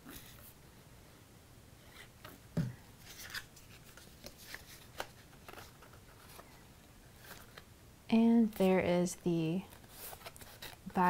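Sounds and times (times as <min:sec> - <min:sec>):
cardstock rustling: 0:03.0 - 0:06.6, 0:09.7 - 0:11.0.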